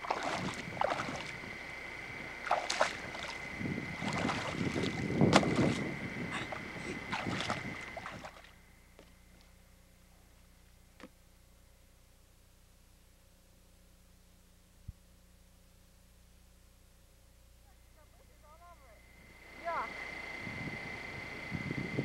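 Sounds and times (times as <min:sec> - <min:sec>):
water sloshing and splashing: 0:00.0 - 0:08.6.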